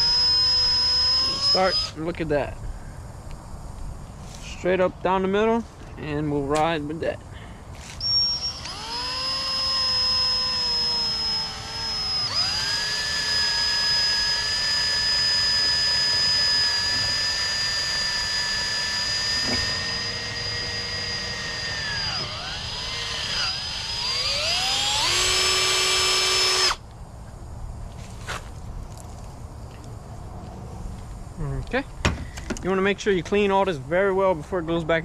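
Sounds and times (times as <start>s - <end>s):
electric drill whine: 0.0s - 2.2s, 7.7s - 26.9s.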